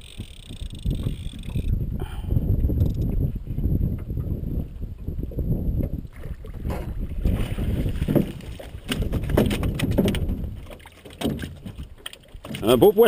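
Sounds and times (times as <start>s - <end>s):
wind and water rumble: 0.0s - 13.0s
fish flopping on aluminum: 6.6s - 12.8s.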